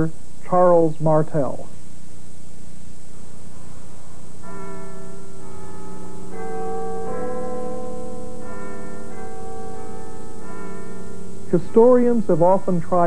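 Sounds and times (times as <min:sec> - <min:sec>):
church bells ringing: 0:03.2 - 0:13.0.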